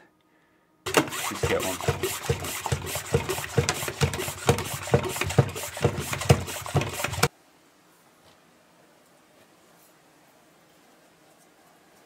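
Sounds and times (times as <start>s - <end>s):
pressure sprayer being pumped: 0.9s - 7.3s.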